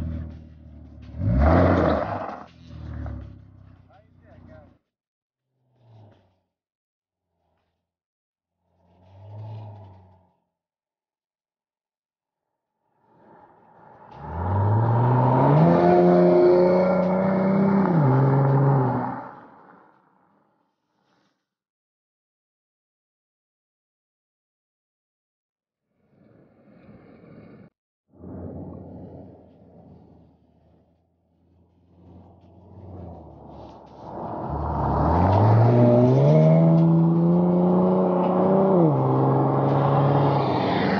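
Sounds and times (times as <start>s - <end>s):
car engine accelerating hard: 0.0s - 4.7s, 8.7s - 10.3s, 14.1s - 19.7s, 31.5s - 40.9s.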